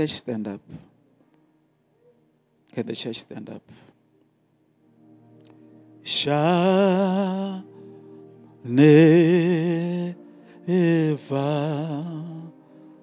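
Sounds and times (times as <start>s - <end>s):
soft sustained backing chords: 0.0s - 13.0s
man singing gospel: 6.0s - 7.8s, 8.6s - 12.6s.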